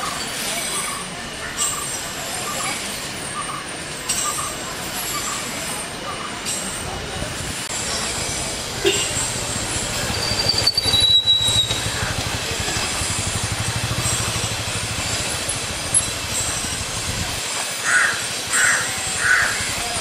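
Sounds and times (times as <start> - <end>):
crow cawing: 17.8 - 19.8.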